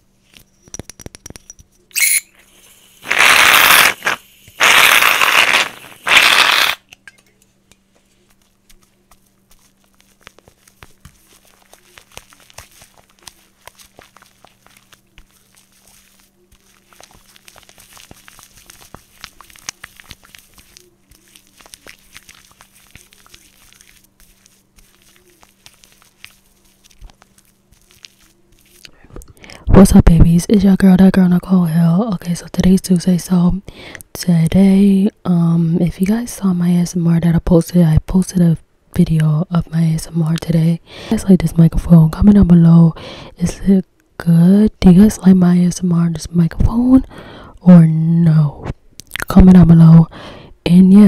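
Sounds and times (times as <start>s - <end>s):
loud hiss bursts: 2.6s - 6.8s
foamy hands squishing: 8.2s - 28.9s.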